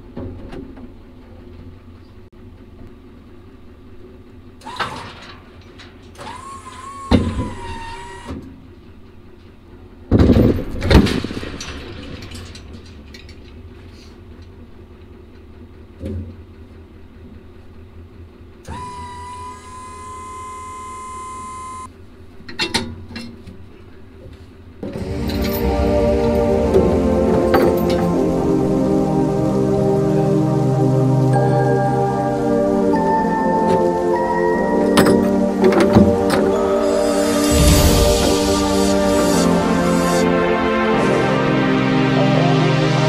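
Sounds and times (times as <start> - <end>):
steady motor whine: 6.2 - 8.4, 18.7 - 21.9, 24.8 - 30.3, 35.2 - 40.5
low steady hum: 23.6 - 43.0.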